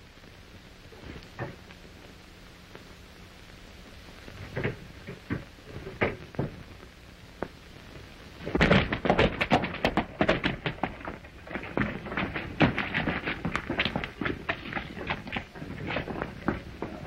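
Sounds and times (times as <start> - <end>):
rapid clattering steps: 8.4 - 17.0
knocks and thuds: 8.5 - 17.0.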